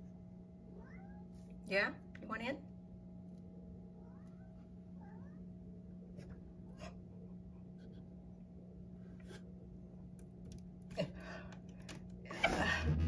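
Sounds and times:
low hum: 11.8 - 13.0.

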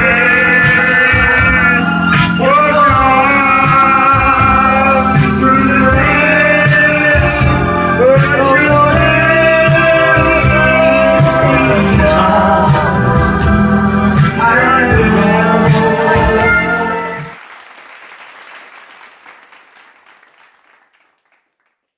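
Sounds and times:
pop music with singing voice: 0.0 - 17.4.

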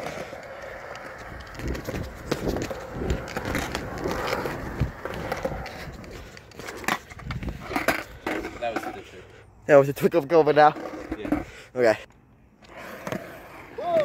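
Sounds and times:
skateboard knocks and clacks: 0.0 - 8.4
skateboard wheels rumbling on concrete: 0.0 - 9.3, 10.0 - 11.6, 12.6 - 14.0.

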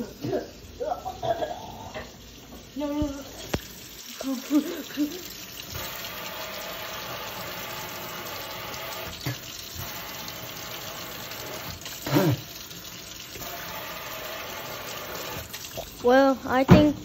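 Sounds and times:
tap running into steel sink: 9.0 - 9.9.

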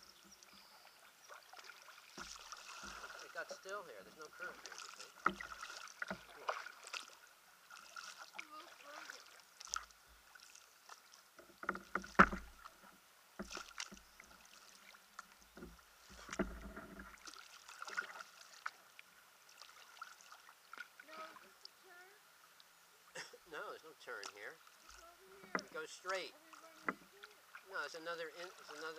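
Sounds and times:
paddle splashes and drips: 0.0 - 28.9
paddle knocks: 4.5 - 6.7, 11.4 - 12.7, 15.5 - 17.2, 25.4 - 27.2.

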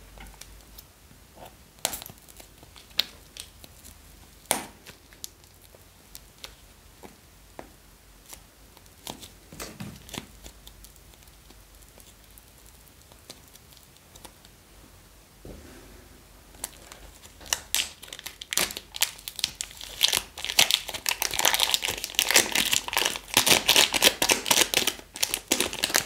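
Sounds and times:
plastic wrapper crinkling and tearing: 16.6 - 26.0.

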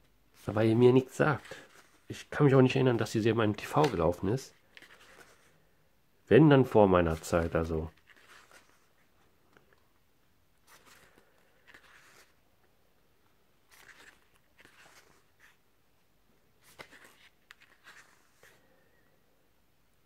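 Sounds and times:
pages turning: 0.4 - 5.6, 6.8 - 9.8, 10.6 - 12.4, 13.6 - 15.6, 16.6 - 18.7.

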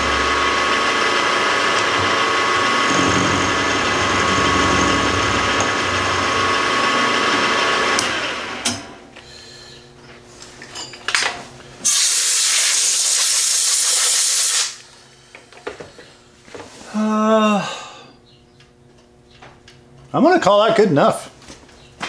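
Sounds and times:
milling machine cutting metal: 0.0 - 8.8.

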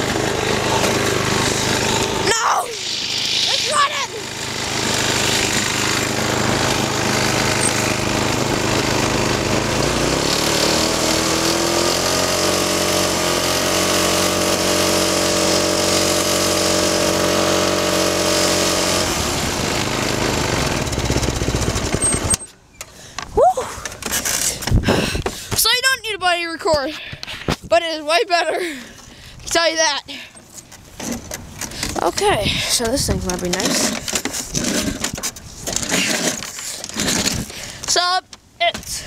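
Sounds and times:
small go-kart engine running: 0.0 - 22.6, 32.8 - 37.8
road rumble: 0.0 - 39.0
wind: 0.0 - 39.0.

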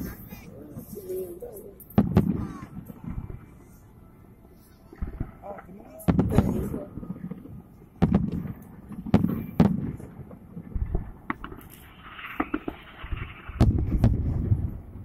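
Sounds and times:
fireworks hissing: 0.0 - 4.0, 11.4 - 14.8
fireworks bursting: 0.0 - 15.0.

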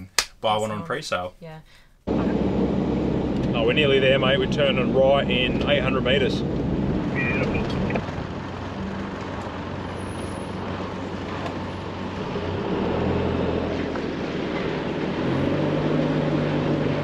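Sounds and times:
road noise inside vehicle: 2.0 - 17.0
vehicle engine hum: 2.0 - 17.0.

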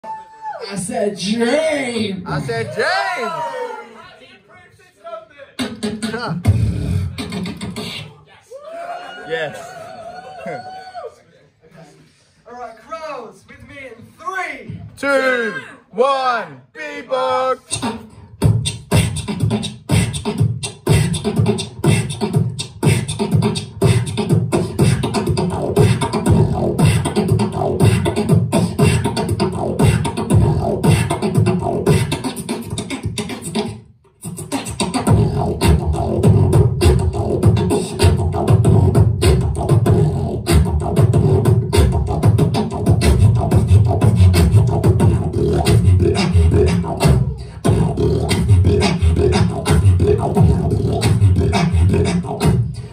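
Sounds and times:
beatboxing into a microphone: 0.0 - 2.6, 5.5 - 8.3, 17.6 - 52.9.

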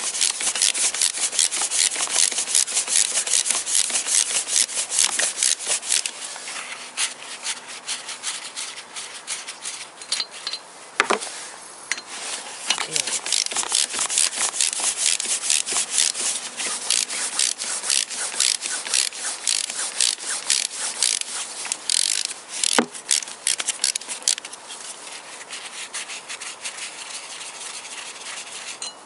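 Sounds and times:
ratchet wrench clicking: 0.2 - 6.1, 13.0 - 24.4.

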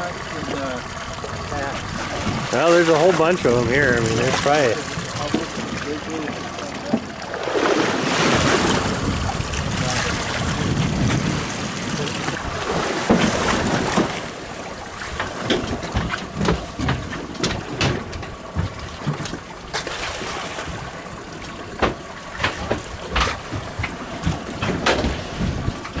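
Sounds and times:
water lapping against boat hull: 0.0 - 26.0
short splashes: 0.3 - 17.2, 19.7 - 21.6
wind on microphone: 7.4 - 14.1, 22.7 - 26.0.

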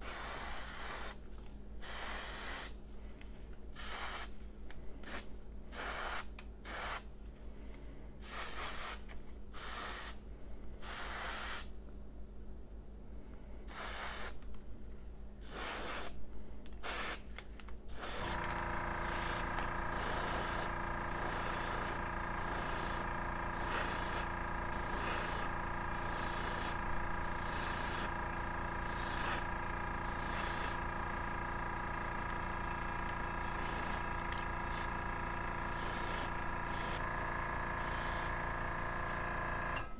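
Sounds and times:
airbrush spraying in hissing bursts: 0.0 - 1.2, 1.8 - 2.8, 3.8 - 4.3, 5.0 - 7.1, 8.2 - 9.0, 9.6 - 10.2, 10.8 - 11.7, 13.7 - 14.4, 15.4 - 16.2, 16.8 - 17.3, 17.9 - 28.2, 28.8 - 30.8, 33.4 - 37.0, 37.8 - 38.4.

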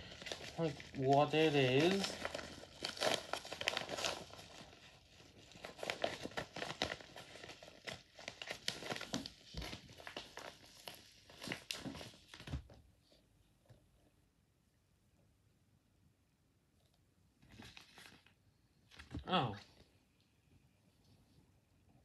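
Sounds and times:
envelope tearing and crinkling: 0.0 - 12.7, 17.5 - 19.2.

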